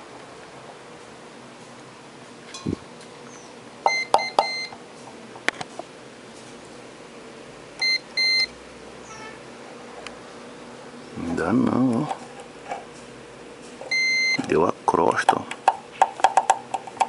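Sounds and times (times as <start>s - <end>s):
multimeter beeps: 3.8s - 4.8s, 7.8s - 8.5s, 13.9s - 14.5s.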